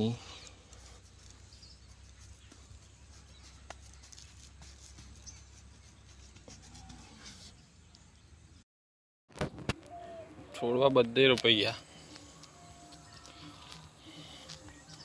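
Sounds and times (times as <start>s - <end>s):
hands rustling in soil: 0.0s - 7.6s.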